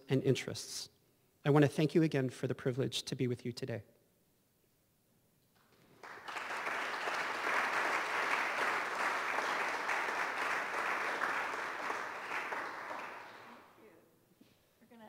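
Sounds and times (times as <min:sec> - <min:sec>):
audience applauding: 0:05.8 - 0:13.7.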